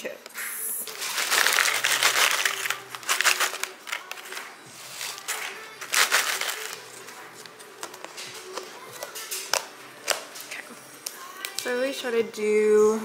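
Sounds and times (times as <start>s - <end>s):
chips rattling into plastic box: 0.8s - 7.2s
plastic chip bag crinkling: 0.8s - 11.7s.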